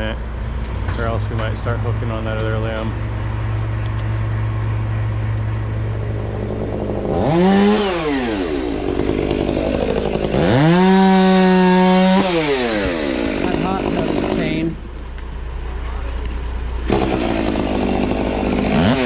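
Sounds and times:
steady low engine hum: 0.0 - 19.0
chainsaw revving: 6.2 - 14.8, 16.8 - 19.0.

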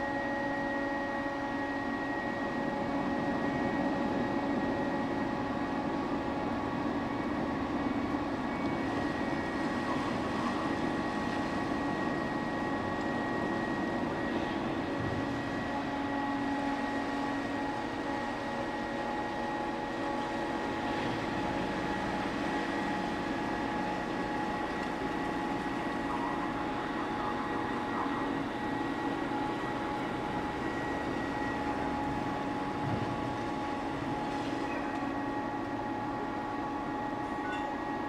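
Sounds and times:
ship machinery drone: 0.0 - 38.0
steady whining tones: 0.0 - 38.0
ventilation fans humming: 0.0 - 38.0.

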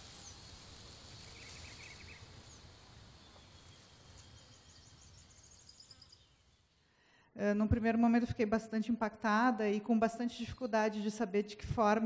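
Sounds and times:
small birds chirping: 0.0 - 6.8
steady hiss: 0.0 - 6.8.

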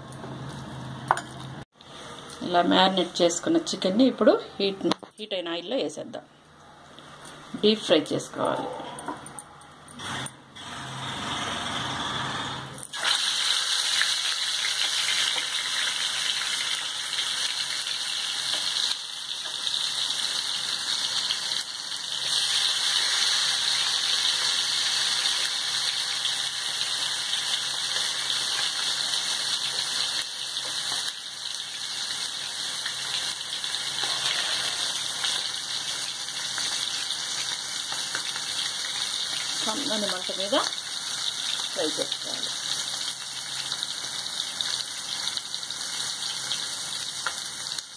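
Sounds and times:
chicken sizzling in hot oil: 12.8 - 47.9.

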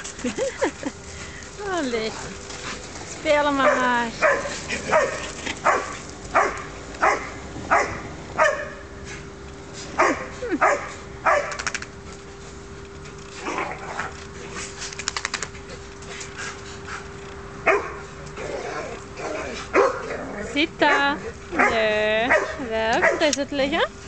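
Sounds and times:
dogs barking: 3.5 - 9.0, 10.0 - 11.7, 17.6 - 23.4
quick run of clicks: 11.5 - 11.9, 14.8 - 15.6.

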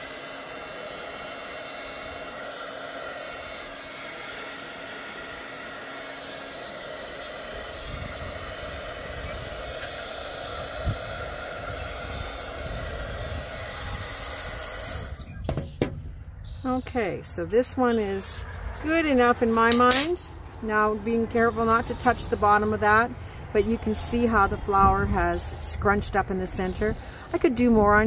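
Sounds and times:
heat tool fan blowing: 0.0 - 15.9, 17.0 - 28.0
wind rumbling on microphone: 7.7 - 28.0.

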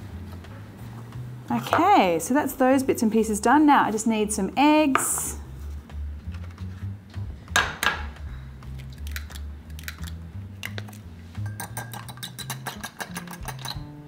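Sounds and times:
soft background music: 0.0 - 14.0
eggs cracking on a bowl: 7.6 - 13.9
utensil clicking against bowl: 8.8 - 11.0, 11.6 - 13.9.

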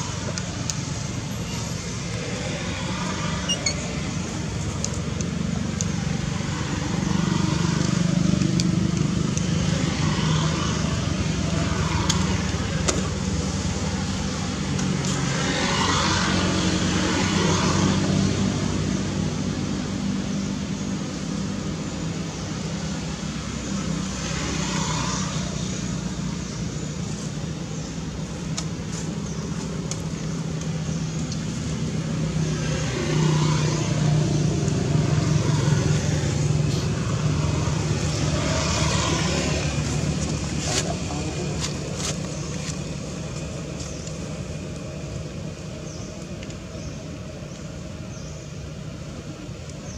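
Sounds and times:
road traffic noise: 0.0 - 49.9
vehicle engine humming: 0.0 - 49.9.

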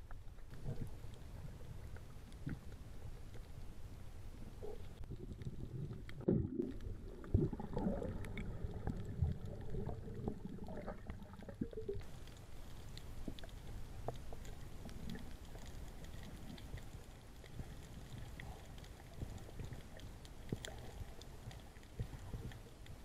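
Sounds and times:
muffled underwater water rumble: 0.0 - 23.0.

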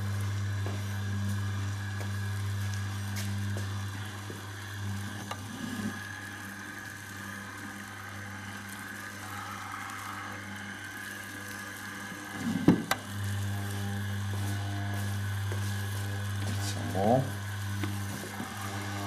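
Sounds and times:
dough mixer motor humming: 0.0 - 19.0.

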